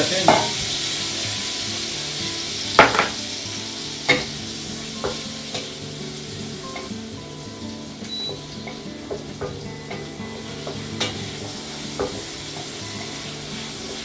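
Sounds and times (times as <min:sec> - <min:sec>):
pork sizzling in oil: 0:00.0 - 0:14.0
wooden spatula knocking pan: 0:00.2 - 0:00.8, 0:02.8 - 0:03.2, 0:04.1 - 0:04.4, 0:05.0 - 0:05.8, 0:08.0 - 0:12.8.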